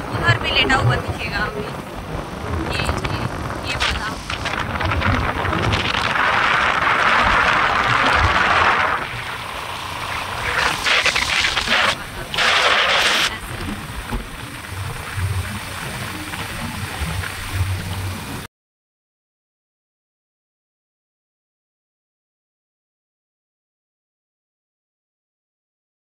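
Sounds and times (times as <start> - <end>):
motorbike rumble: 0.0 - 18.4
wind rushing over microphone: 0.0 - 18.5.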